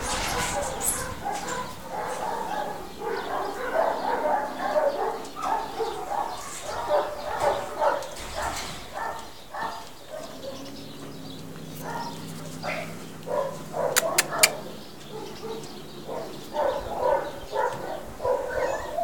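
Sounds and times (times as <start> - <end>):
dog barking: 0.0 - 10.7, 11.8 - 19.0
sharp clicks: 14.0 - 14.6.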